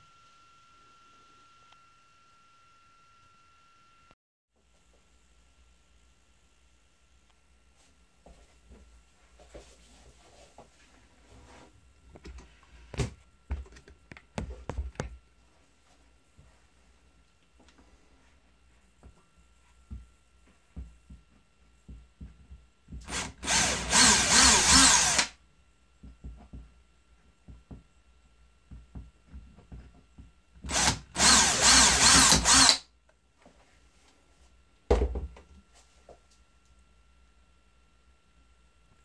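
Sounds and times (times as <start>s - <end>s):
electric drill running: 23.0s - 25.4s, 30.7s - 32.9s.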